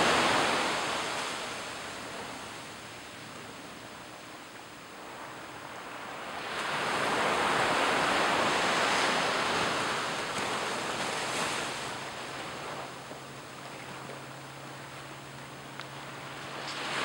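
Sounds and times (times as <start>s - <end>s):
wave washing up beach: 0.0s - 2.6s, 5.1s - 13.6s, 15.9s - 17.0s.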